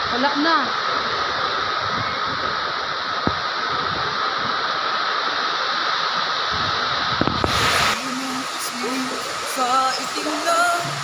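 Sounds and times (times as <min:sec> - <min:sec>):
strong wind buffeting microphone: 0:00.0 - 0:05.4, 0:06.5 - 0:08.0.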